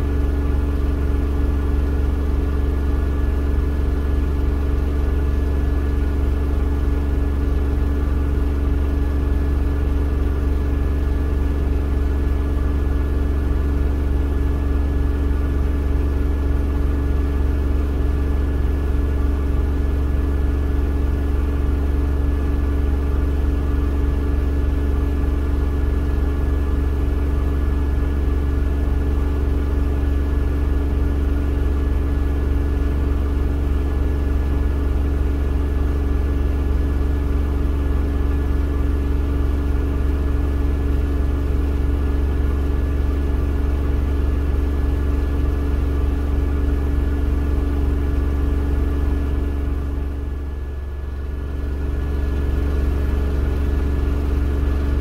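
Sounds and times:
washing machine spinning: 0.0s - 55.0s.

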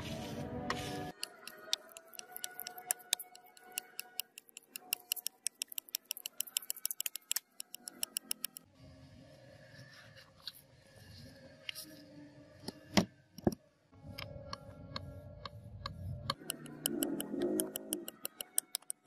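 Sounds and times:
knife blade on wet sandpaper: 0.0s - 7.3s.

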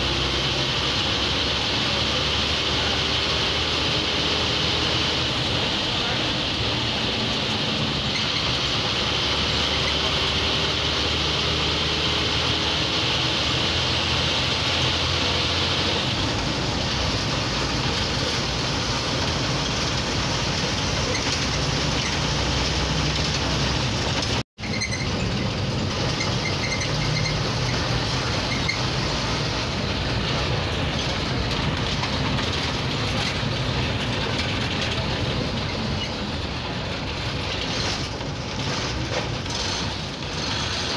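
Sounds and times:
bus diesel engine running: 0.0s - 40.9s
road noise: 0.0s - 40.9s.

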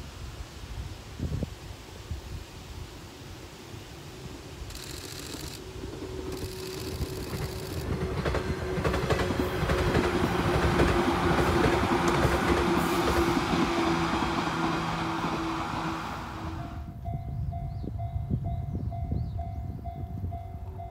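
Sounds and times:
electric train motor hum: 4.7s - 16.9s
train wheels clacking over rail joints: 6.3s - 14.7s.

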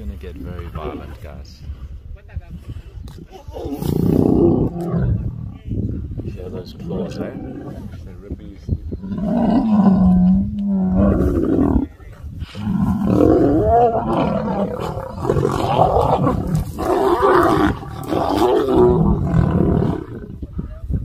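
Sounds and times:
lions roaring while fighting: 3.6s - 5.5s, 6.5s - 8.0s, 9.0s - 20.4s.

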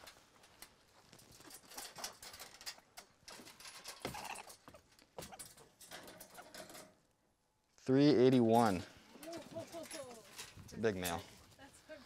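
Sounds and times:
wire-mesh trap rattling: 1.4s - 4.6s, 5.2s - 7.0s, 9.2s - 11.2s.

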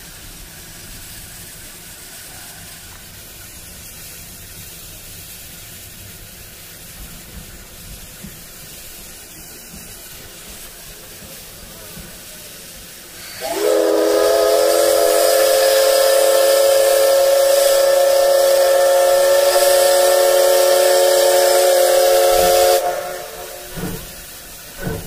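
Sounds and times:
soft puff of steam: 0.0s - 25.0s
steam hissing: 0.0s - 25.0s
steam locomotive whistle blast: 13.2s - 24.3s.

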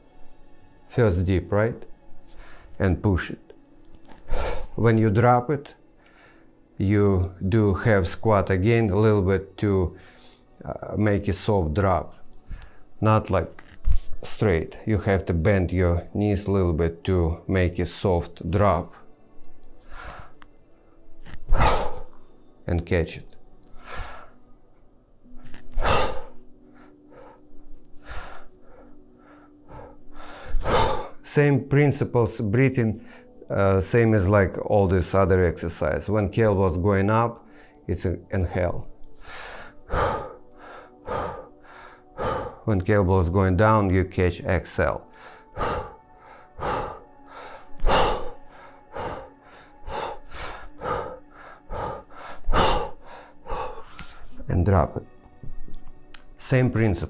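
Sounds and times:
man breathing hard: 4.1s - 4.8s, 19.8s - 22.3s, 23.7s - 24.5s, 25.4s - 31.2s, 39.1s - 42.6s, 45.0s - 54.5s.

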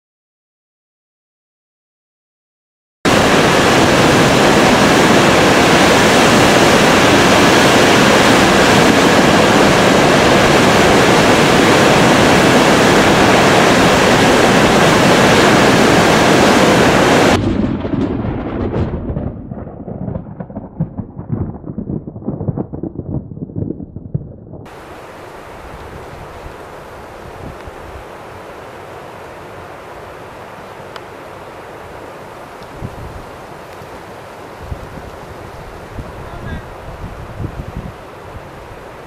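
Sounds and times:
flood water roaring: 3.1s - 17.4s, 24.7s - 39.0s.

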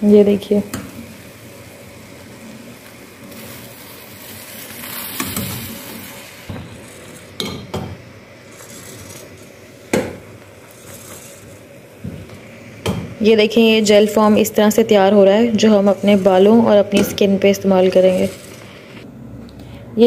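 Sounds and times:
water boiling in a metal pot: 0.0s - 19.0s.

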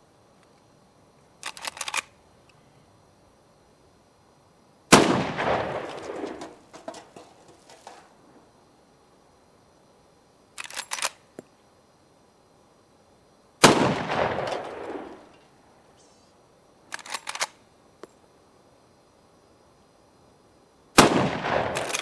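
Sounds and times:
rifle lever action clicks: 1.4s - 2.1s, 10.6s - 11.2s, 16.9s - 17.6s.

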